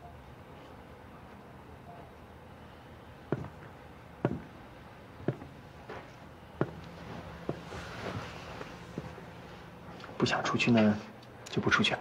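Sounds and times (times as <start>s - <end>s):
hard-soled footsteps on hard floor: 3.3s - 4.5s, 5.2s - 9.3s.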